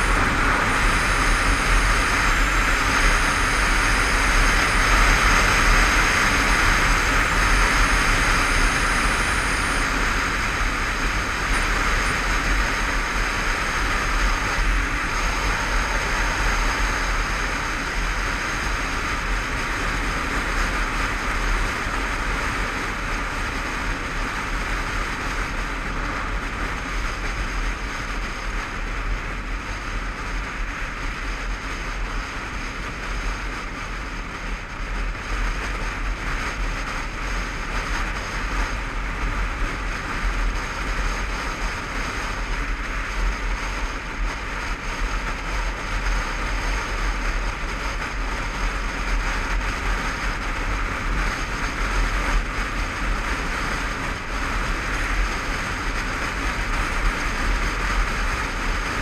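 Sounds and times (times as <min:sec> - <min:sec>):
motorcycle engine: 0:00.0 - 0:59.0
wind rush over camera: 0:00.0 - 0:59.0.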